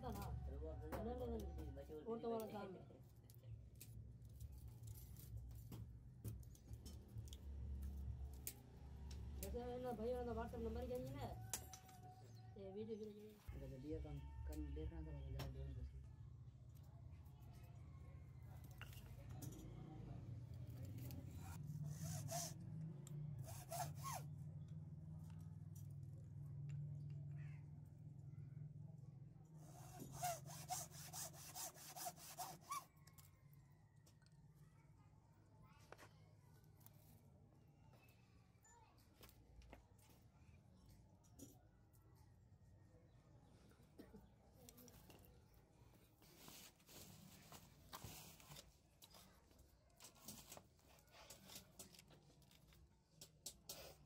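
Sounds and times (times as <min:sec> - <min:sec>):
pencil marking wood: 0:21.8 - 0:22.6, 0:29.6 - 0:32.8.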